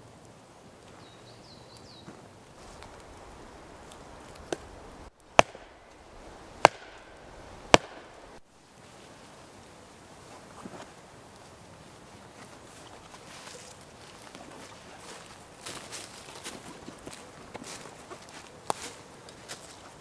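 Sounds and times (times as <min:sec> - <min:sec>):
sharp chopping strikes: 0:04.4 - 0:08.4.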